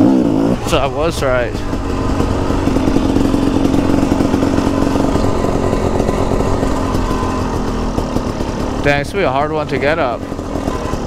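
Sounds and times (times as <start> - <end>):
dirt bike engine running: 0.0 - 11.0.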